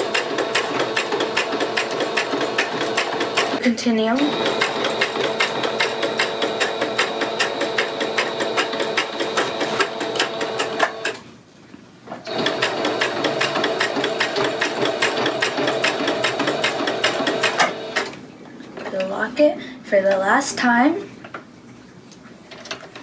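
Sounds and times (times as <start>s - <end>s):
sewing machine stitching: 0.0s - 11.2s, 12.3s - 18.1s.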